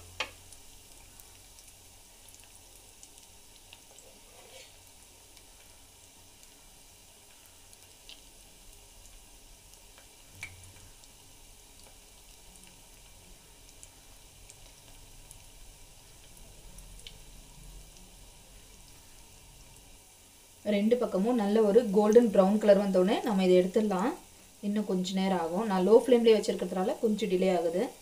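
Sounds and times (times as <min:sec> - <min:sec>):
food deep-frying in oil: 0:00.0 - 0:28.0.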